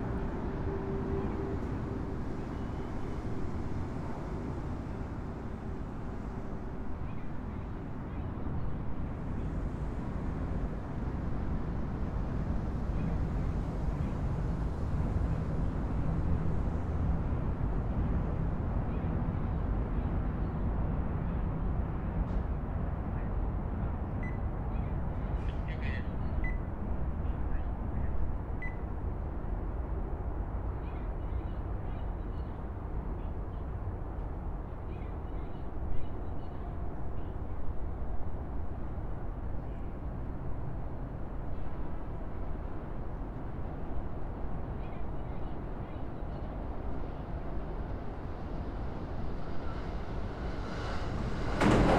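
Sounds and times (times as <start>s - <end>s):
distant road traffic rumble: 21.6s - 51.9s.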